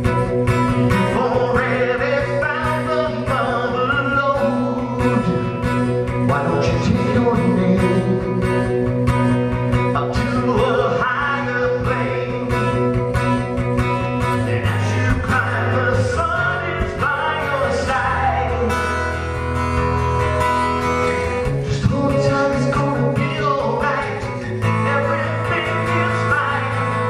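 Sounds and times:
acoustic guitar: 0:00.0 - 0:27.0
man singing into a microphone: 0:00.8 - 0:08.8, 0:09.8 - 0:19.3, 0:21.4 - 0:27.0.

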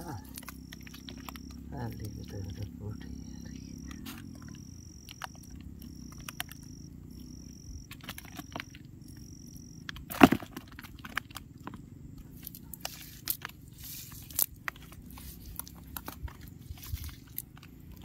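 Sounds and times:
wet net clicks and crackles: 0:00.0 - 0:01.6, 0:07.2 - 0:09.2, 0:09.9 - 0:18.0
pulsing high tone: 0:00.0 - 0:09.9
steady low hum: 0:00.0 - 0:18.0.

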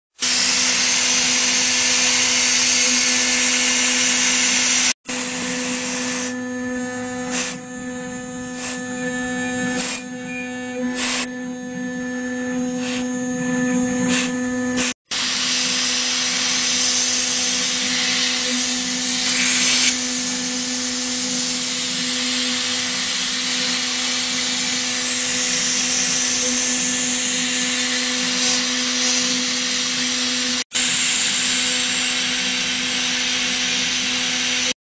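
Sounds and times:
hiss of metal cutting: 0:00.1 - 0:06.3, 0:07.2 - 0:07.6, 0:09.5 - 0:10.1, 0:12.7 - 0:13.2, 0:14.0 - 0:34.8
router spindle whining: 0:00.1 - 0:34.8.

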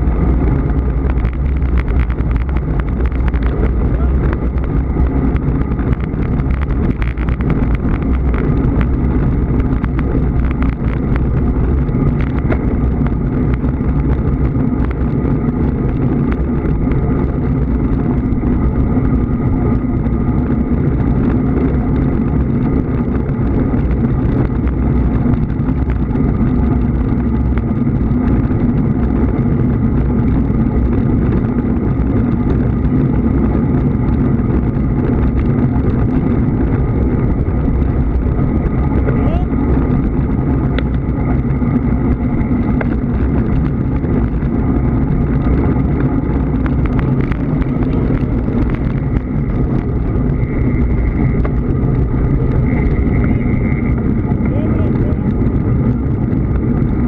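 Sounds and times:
faint steady hum: 0:00.0 - 0:57.0
road rumble: 0:00.0 - 0:57.0
wind rushing: 0:00.0 - 0:57.0.

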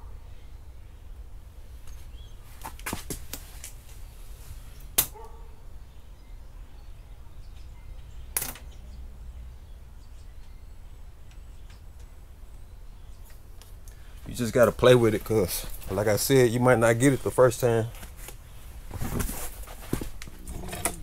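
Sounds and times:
vinyl tape snapping and crackling: 0:04.8 - 0:05.2.

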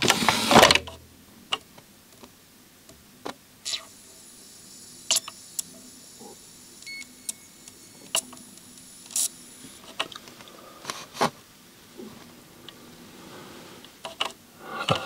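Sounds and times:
thin high whine: 0:03.6 - 0:10.9
disc drive clicks and ticks: 0:05.1 - 0:10.5.

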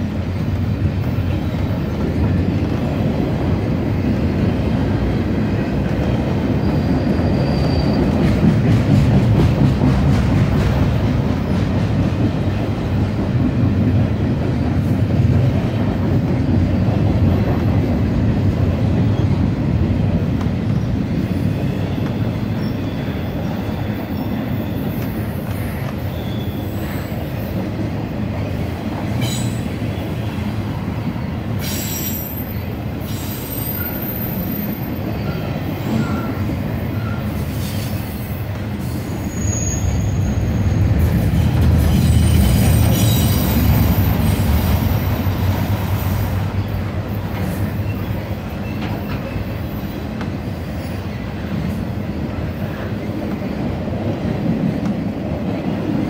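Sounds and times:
train wheels rumbling on track: 0:00.0 - 0:56.0
high-pitched wheel squeals: 0:06.6 - 0:08.1, 0:26.1 - 0:27.0, 0:39.2 - 0:40.7.

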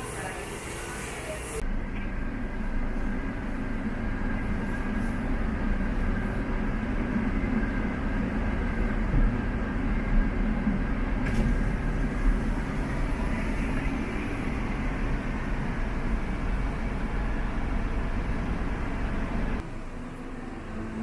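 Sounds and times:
road noise: 0:00.0 - 0:21.0
vehicle engine rumble: 0:01.5 - 0:21.0.

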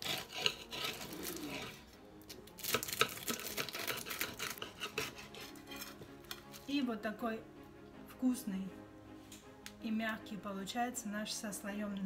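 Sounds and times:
knife sawing through crisp pastry: 0:00.0 - 0:01.9, 0:02.6 - 0:06.7.

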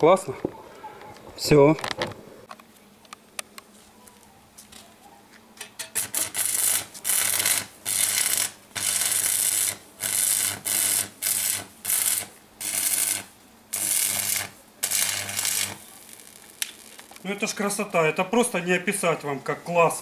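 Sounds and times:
low welder hum: 0:05.6 - 0:19.1
arc striking pops: 0:05.7 - 0:17.5
welding arc crackling and sizzling: 0:05.7 - 0:19.1.

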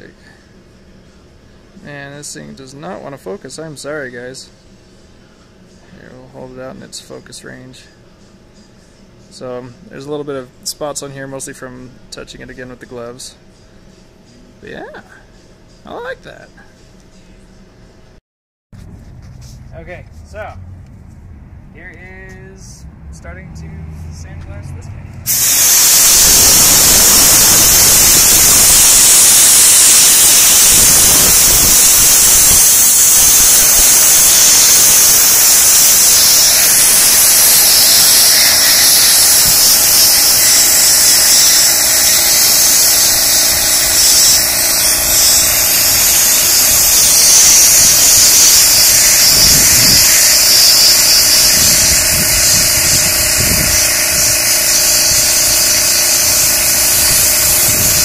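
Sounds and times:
air compressor motor humming: 0:25.2 - 0:58.0
sandblaster hissing: 0:25.3 - 0:58.0.

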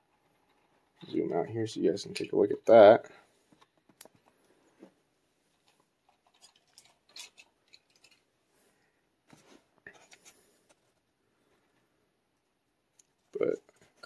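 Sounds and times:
plastic packaging crinkling: 0:05.6 - 0:08.3.

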